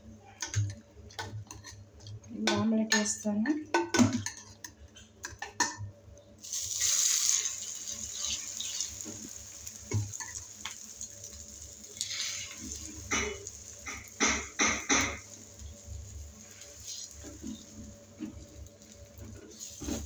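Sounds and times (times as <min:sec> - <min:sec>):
egg mixture sizzling in pan: 0:06.4 - 0:20.0.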